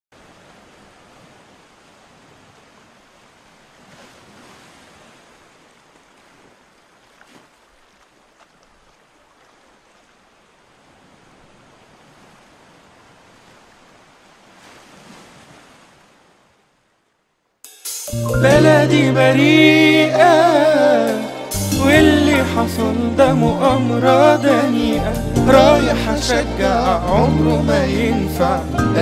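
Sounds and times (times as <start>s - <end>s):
sea waves washing in: 0.2s - 8.2s, 8.9s - 16.8s, 18.3s - 29.0s.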